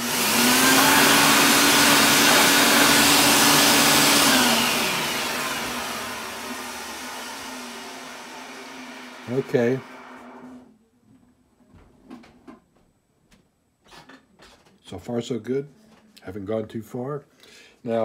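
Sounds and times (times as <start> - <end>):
electric motor humming: 0.0 - 10.6.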